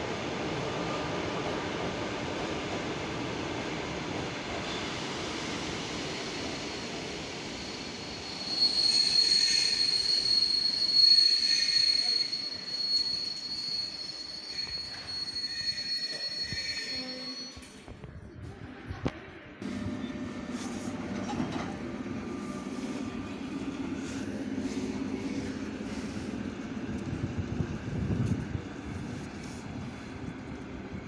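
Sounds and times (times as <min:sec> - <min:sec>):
metallic wheel squeal: 0:07.7 - 0:17.8
train rumbling past: 0:19.6 - 0:31.0.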